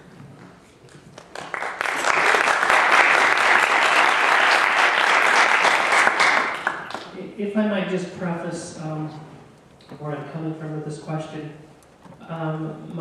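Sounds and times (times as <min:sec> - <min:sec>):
audience applauding: 0:00.9 - 0:07.1.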